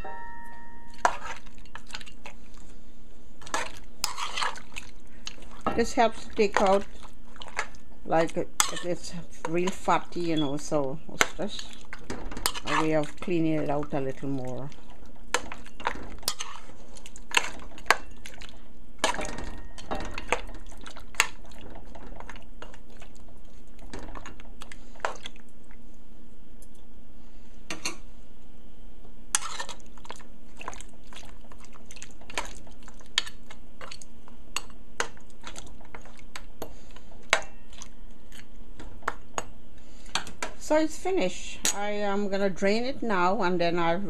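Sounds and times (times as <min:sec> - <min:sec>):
metal spoon clinking against pot: 0:19.0 - 0:20.5.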